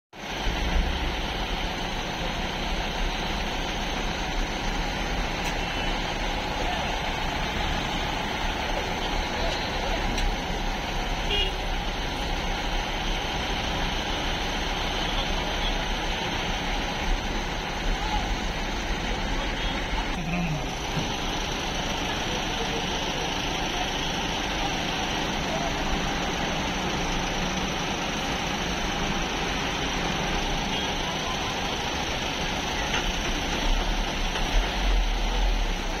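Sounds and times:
truck engines running: 0.2 - 36.0
indistinct voices: 4.5 - 36.0.

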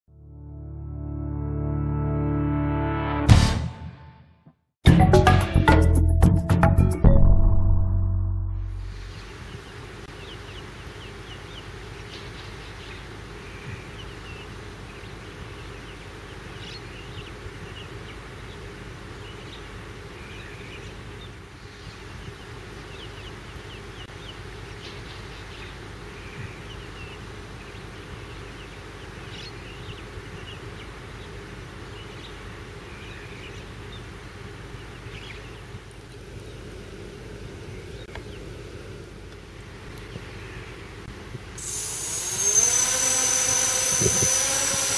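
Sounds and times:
low hum and rumble: 7.1 - 10.9.

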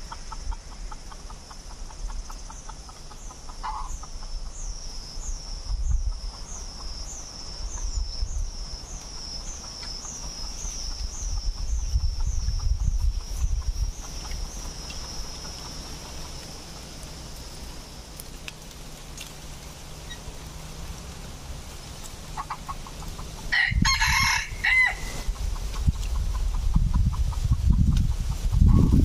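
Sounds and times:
soft clucks: 0.1 - 4.5, 22.3 - 23.4
rooster crowing: 23.4 - 25.3.

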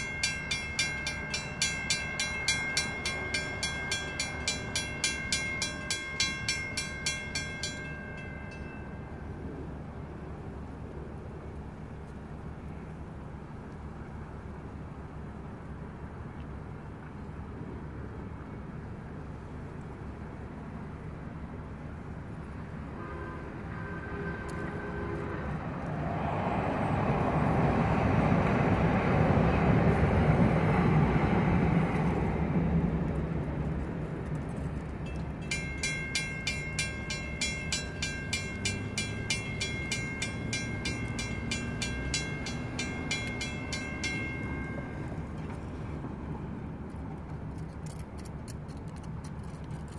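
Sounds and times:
crossing warning bell dinging: 0.0 - 9.5, 35.0 - 46.2
light rail train passing: 0.0 - 48.6.

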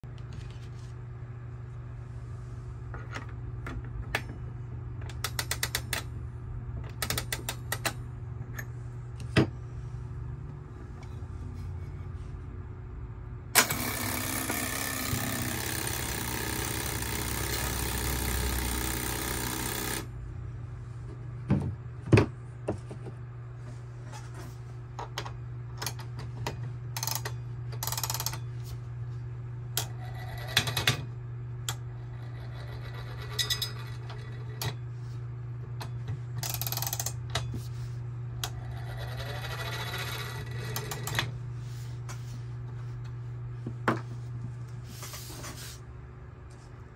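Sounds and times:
mechanical whirring: 13.6 - 20.1
metallic clicks of reel winding: 36.4 - 37.2.

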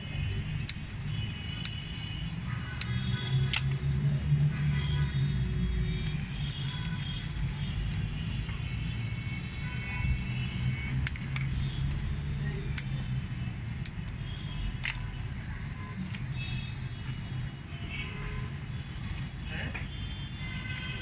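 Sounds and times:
distant traffic rumble: 0.0 - 21.0
sharp clicks: 0.3 - 2.1, 10.9 - 15.2.

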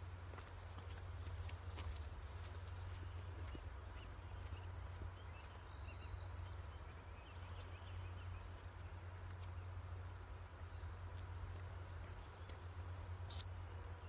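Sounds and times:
distant bird chirps: 12.2 - 14.0.

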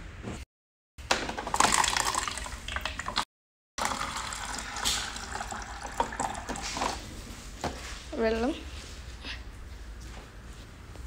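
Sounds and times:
water pouring into a foam cup: 1.5 - 3.2, 3.8 - 7.0.

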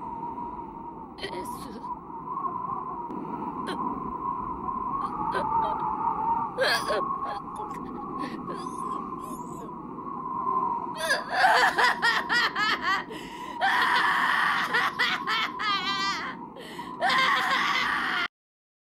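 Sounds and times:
voice in laugh-like bursts: 13.9 - 16.3.

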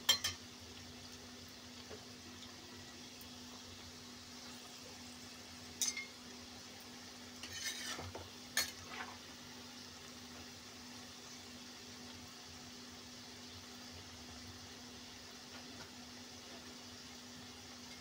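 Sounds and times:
food deep-frying in oil: 0.0 - 18.0
spatula scraping pan: 7.4 - 9.2.

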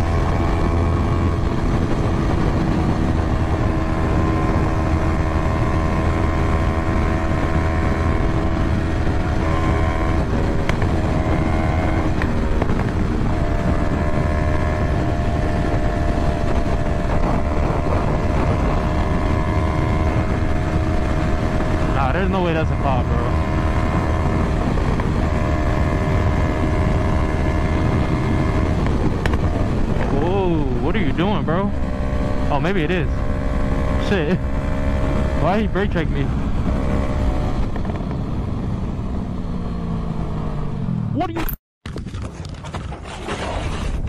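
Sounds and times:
wind rush: 0.0 - 41.0
motorcycle engine running: 0.0 - 41.6.

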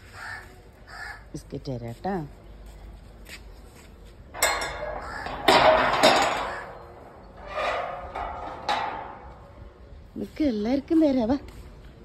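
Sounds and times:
metal gate scraping and rattling: 4.3 - 9.9.

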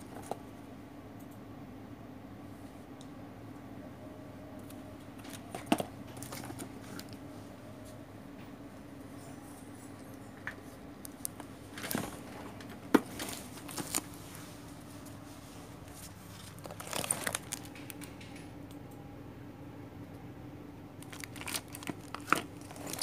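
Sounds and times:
low steady hum: 0.0 - 23.0
plastic wrap crinkling: 11.1 - 18.2, 21.0 - 23.0.

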